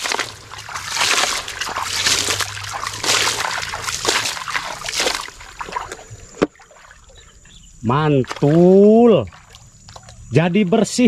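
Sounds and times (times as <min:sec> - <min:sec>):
hand scraping wet gravel: 0:00.0 - 0:06.4
water splashing and trickling: 0:00.0 - 0:11.0.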